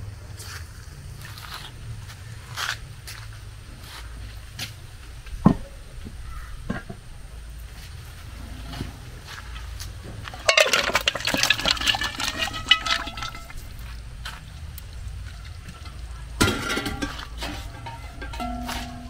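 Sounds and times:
metal pots clinking and scraping: 0:08.3 - 0:19.0
liquid pouring between pots: 0:10.3 - 0:19.0.

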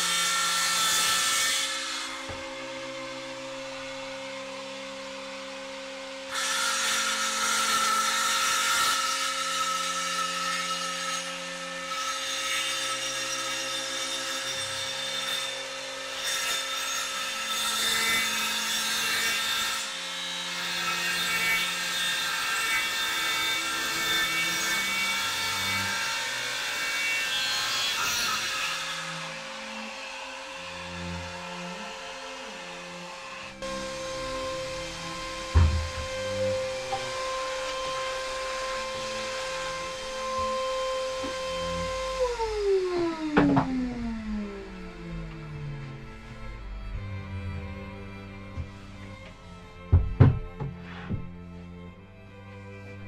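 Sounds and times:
circular saw cutting board: 0:00.0 - 0:53.0
vacuum cleaner humming: 0:01.8 - 0:06.3, 0:29.1 - 0:51.8.

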